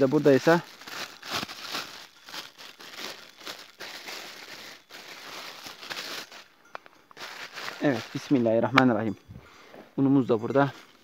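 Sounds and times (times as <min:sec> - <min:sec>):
plastic bag crinkling: 0:00.0 - 0:06.6, 0:07.2 - 0:08.7.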